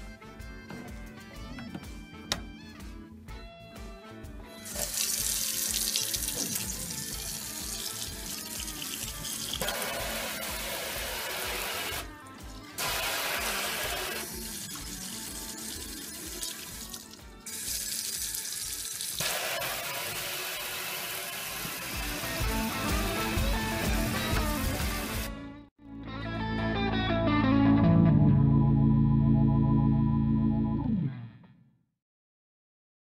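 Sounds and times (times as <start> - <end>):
background music with steady beat: 0.0 - 19.2, 21.5 - 30.8
faucet water running into sink: 4.6 - 12.0, 12.8 - 25.3.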